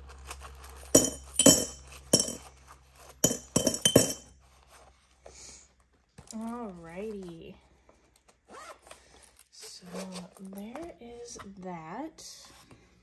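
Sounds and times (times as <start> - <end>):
coins clinking: 0.6 - 2.5, 3.2 - 4.3.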